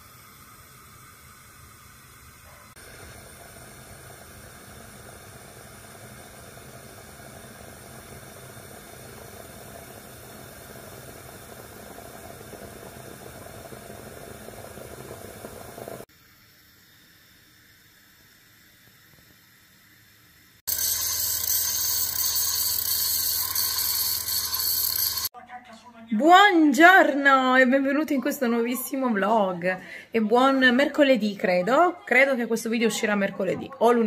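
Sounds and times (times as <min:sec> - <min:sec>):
moka pot hissing: 0:00.0 - 0:25.3.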